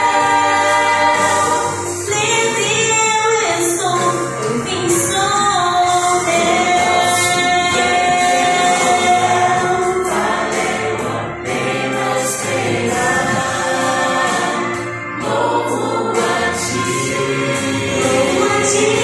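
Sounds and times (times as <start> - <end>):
vocal group singing gospel: 0.0 - 19.0.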